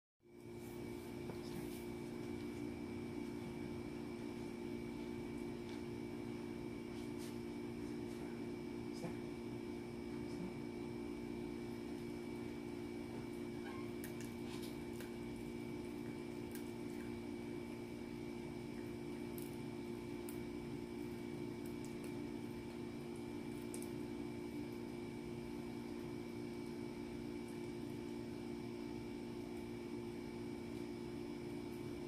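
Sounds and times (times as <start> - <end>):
steady low hum: 0.3 - 32.0
small dog chewing: 13.1 - 18.0.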